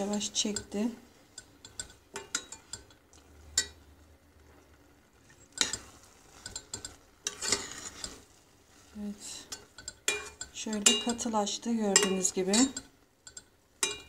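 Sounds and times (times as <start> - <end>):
spoon scraping a metal pot: 5.2 - 11.3.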